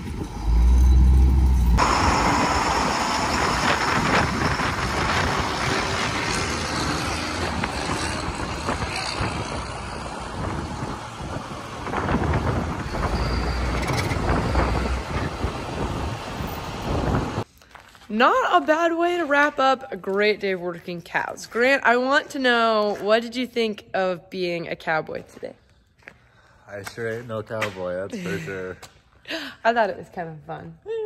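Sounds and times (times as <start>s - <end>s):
truck engines droning under load: 0.0s - 17.4s.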